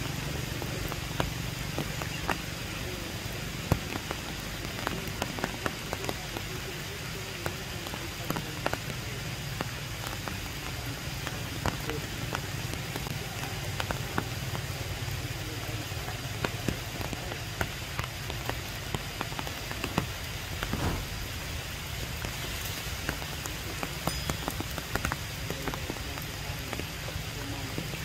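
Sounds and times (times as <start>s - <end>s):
rain on tree leaves: 0.0s - 28.0s
low steady rumble: 20.4s - 24.0s.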